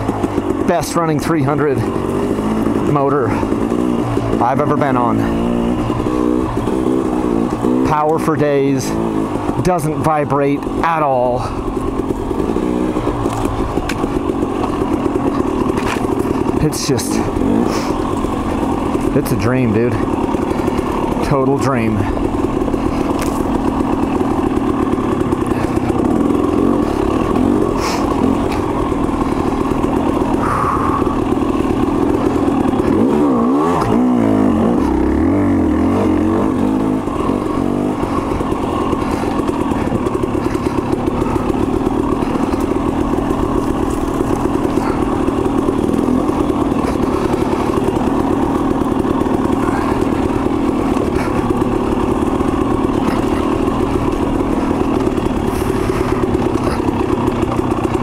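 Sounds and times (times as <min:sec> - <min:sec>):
dirt bike engine running: 0:00.0 - 0:58.0.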